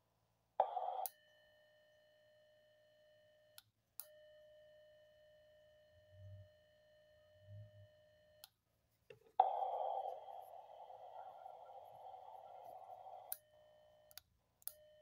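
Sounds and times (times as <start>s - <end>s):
radio receiver static: 9.1s - 13.3s
steady radio tone: 9.1s - 13.4s.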